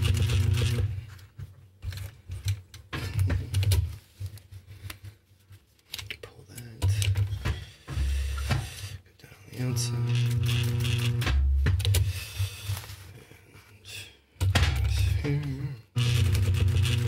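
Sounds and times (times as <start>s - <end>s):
sewing machine stitching: 0.0s - 1.0s, 9.9s - 12.0s, 15.9s - 17.0s.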